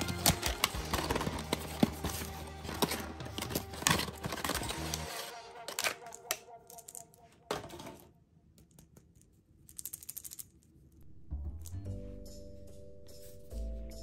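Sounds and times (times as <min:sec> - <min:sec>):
cardboard box crackling and scraping: 0:00.0 - 0:05.1
background music: 0:00.0 - 0:08.0, 0:11.0 - 0:14.0.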